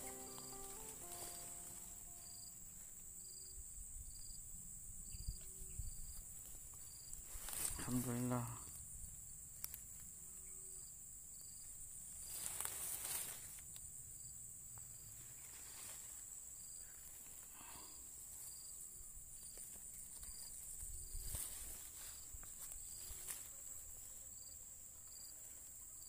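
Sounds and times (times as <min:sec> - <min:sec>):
short high chirps: 0:00.0 - 0:02.4
high-pitched insect buzz: 0:00.0 - 0:02.5
rustle: 0:00.0 - 0:26.0.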